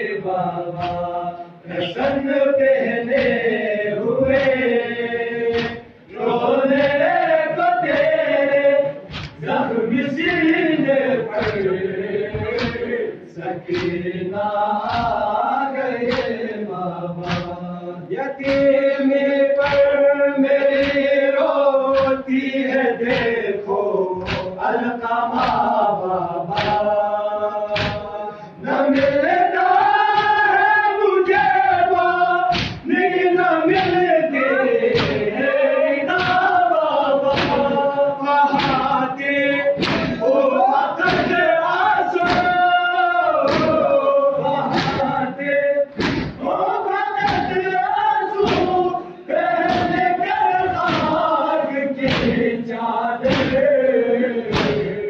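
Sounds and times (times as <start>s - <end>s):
men chanting a lament: 0.0s - 55.0s
hands striking chests: 37.3s - 37.7s, 39.8s - 40.2s, 46.0s - 46.4s.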